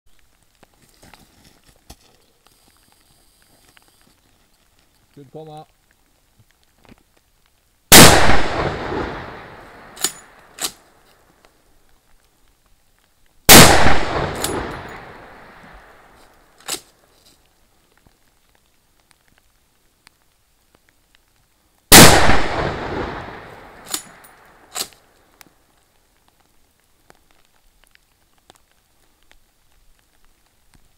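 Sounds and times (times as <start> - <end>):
rifle shots with echo: 7.9 - 10.8, 13.5 - 16.1, 21.9 - 24.9.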